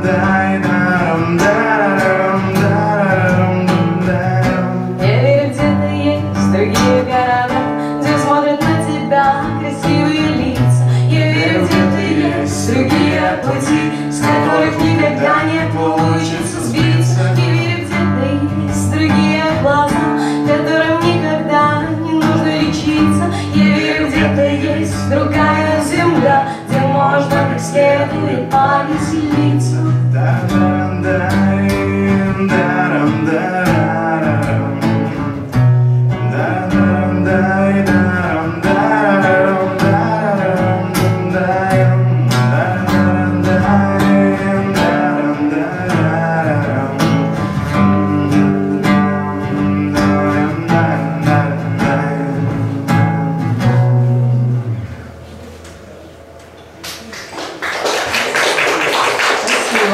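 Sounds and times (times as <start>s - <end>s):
acoustic guitar strumming: 0.0s - 57.1s
woman singing: 4.9s - 33.9s.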